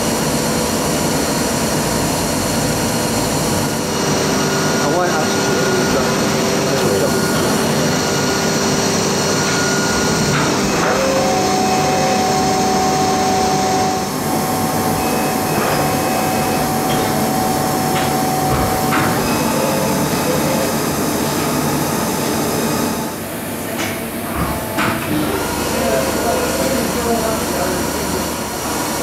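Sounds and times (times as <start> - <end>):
lathe mechanical hum: 0.0 - 29.0
machine whine: 0.0 - 29.0.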